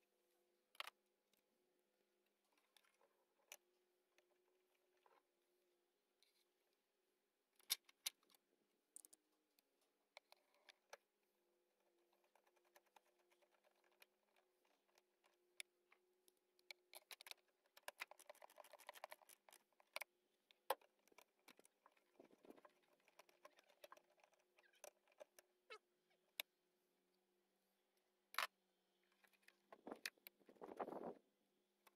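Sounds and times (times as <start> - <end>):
plastic parts clicking: 16.6 - 25.5.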